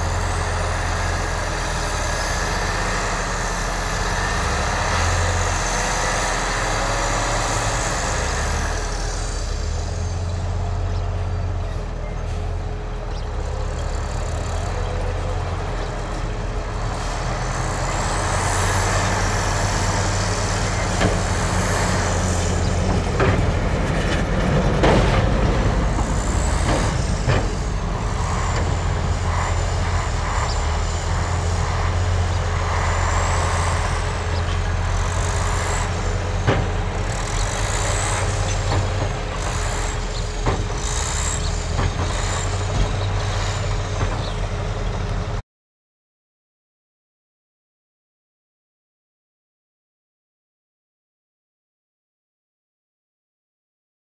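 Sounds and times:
diesel truck engines running: 0:00.0 - 0:45.4
knocks and clanks: 0:20.4 - 0:44.4
high gliding squeaks: 0:25.2 - 0:36.4.

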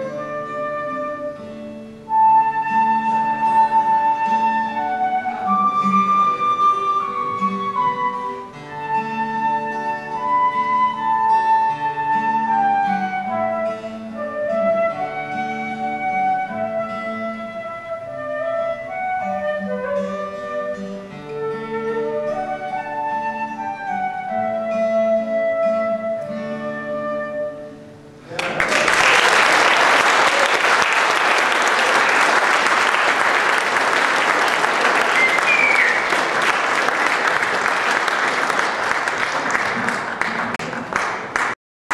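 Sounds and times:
flute melody: 0:00.0 - 0:28.0, 0:30.8 - 0:38.6
acoustic guitar: 0:00.0 - 0:28.6, 0:30.4 - 0:41.5
audience applauding: 0:28.3 - 0:41.6.

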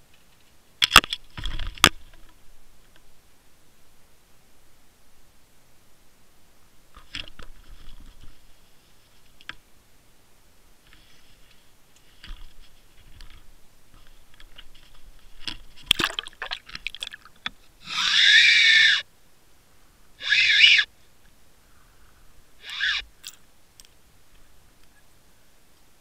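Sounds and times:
splashing into water: 0:15.9 - 0:17.3.

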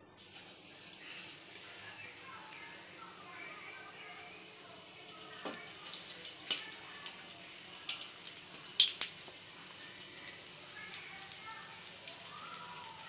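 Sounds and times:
chilies deep-frying in oil: 0:00.0 - 0:13.0
oil popping and crackling: 0:05.0 - 0:13.0.

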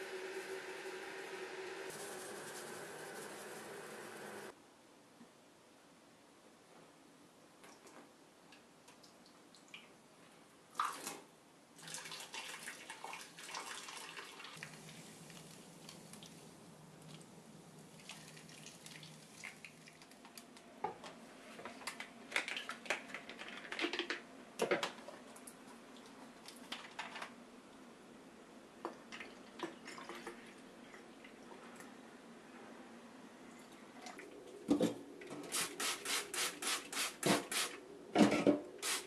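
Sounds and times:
water splashing into drain: 0:17.9 - 0:20.1.

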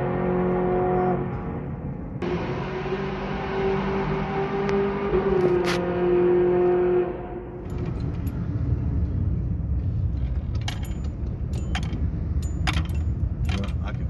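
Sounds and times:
car driving rumble: 0:00.0 - 0:14.0
keys jangling: 0:10.5 - 0:14.0.

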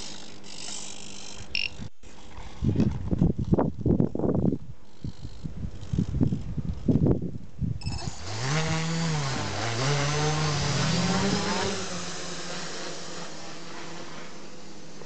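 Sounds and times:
quadcopter propellers buzzing: 0:00.0 - 0:03.5, 0:07.8 - 0:15.0.

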